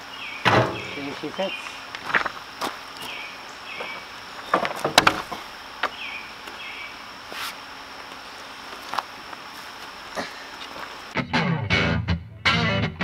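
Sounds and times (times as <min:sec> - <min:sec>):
high insect hum: 0:00.0 - 0:11.2.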